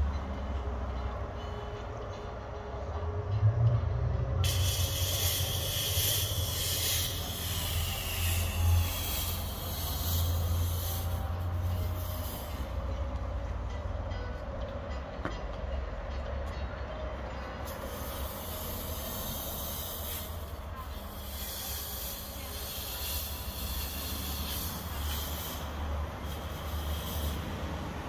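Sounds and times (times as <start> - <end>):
fog machine hissing: 4.4 - 12.9, 17.7 - 28.0.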